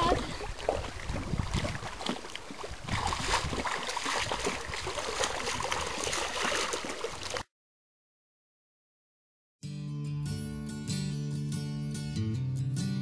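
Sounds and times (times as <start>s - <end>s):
water splashing from swimming: 0.0s - 7.5s.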